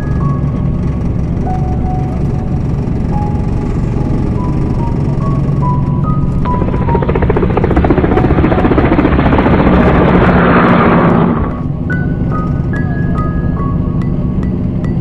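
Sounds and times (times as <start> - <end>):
background music with mallet notes: 0.0 - 7.2, 11.7 - 15.0
road and wind noise: 0.0 - 15.0.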